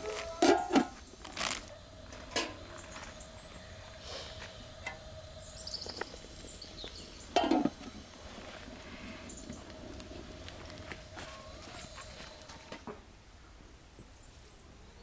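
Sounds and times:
high bird chirps: 0:05.3 - 0:07.4.

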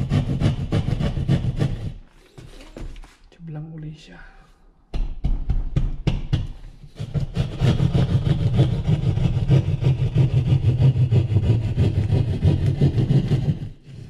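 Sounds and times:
saw rasping through drywall: 0:00.0 - 0:02.2, 0:06.3 - 0:14.0
saw point knocking into drywall: 0:05.1 - 0:13.7.

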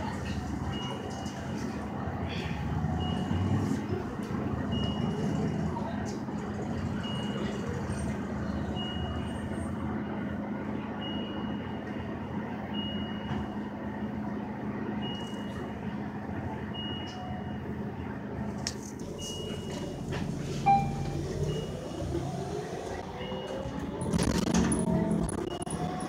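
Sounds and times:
bus engine drone: 0:00.0 - 0:26.0
high-pitched electronic beep: 0:20.7 - 0:21.8.

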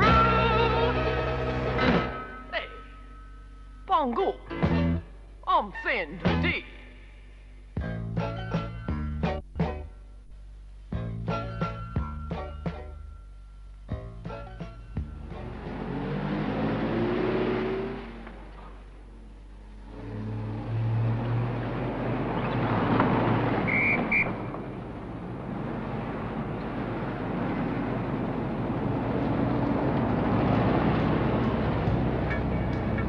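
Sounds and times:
car engines and tyres: 0:00.0 - 0:03.8, 0:10.3 - 0:33.0
low engine hum: 0:13.1 - 0:33.0.

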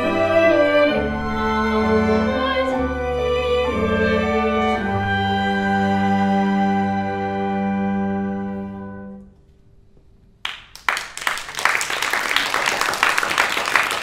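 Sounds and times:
audience applauding: 0:10.4 - 0:14.0.

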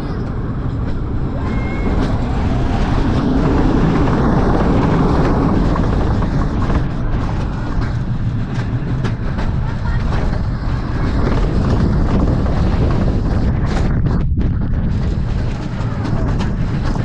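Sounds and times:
roller coaster rumbling and clattering: 0:00.0 - 0:17.0.

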